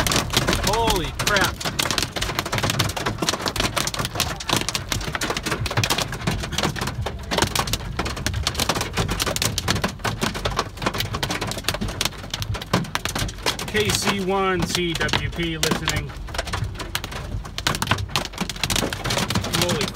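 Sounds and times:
hail and rain on car roof: 0.0s - 19.9s.

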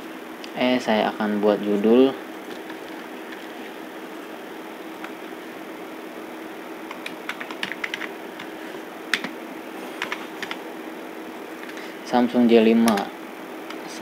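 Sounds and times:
steady low hum: 0.0s - 14.0s
keyboard typing clicks: 6.9s - 8.1s.

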